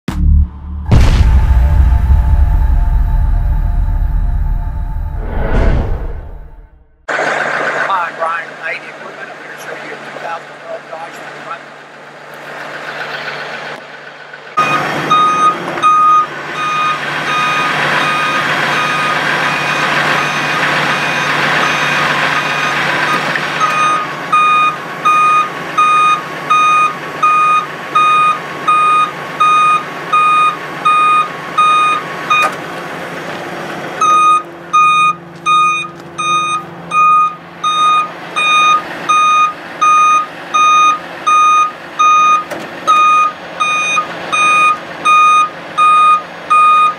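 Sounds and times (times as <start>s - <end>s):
truck engine hum: 0.0s - 46.9s
rushing noise: 0.1s - 8.4s
truck warning beeper: 0.2s - 6.8s, 14.6s - 32.5s, 34.0s - 46.9s.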